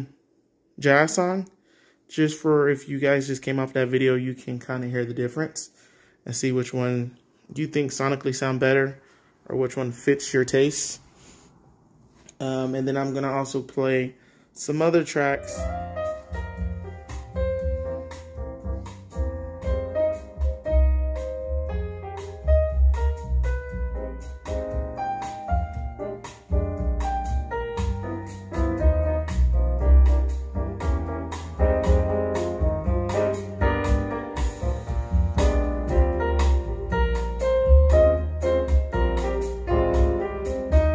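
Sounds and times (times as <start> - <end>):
bass line: 15.3 - 40.9
jazz piano: 15.3 - 40.9.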